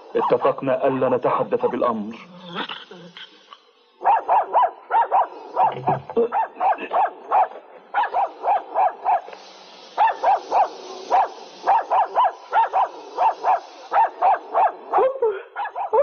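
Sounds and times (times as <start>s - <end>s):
small dog yapping: 4.0s - 9.2s, 10.0s - 16.0s.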